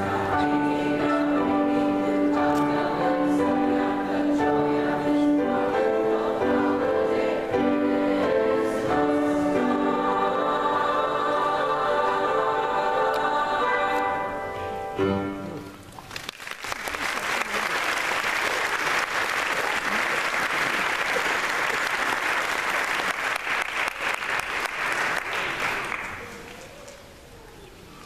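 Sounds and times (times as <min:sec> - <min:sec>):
children's choir singing: 0:00.0 - 0:15.5
audience applause: 0:16.0 - 0:26.7.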